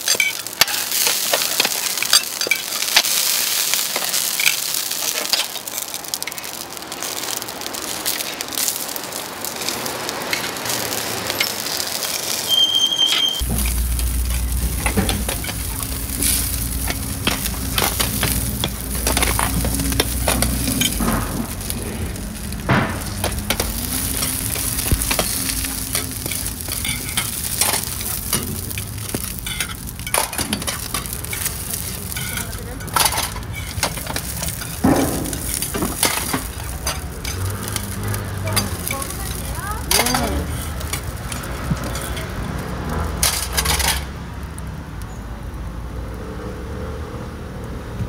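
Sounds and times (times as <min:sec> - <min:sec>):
food sizzling on griddle: 0:00.0 - 0:48.0
metal lids clinking: 0:22.4 - 0:42.3.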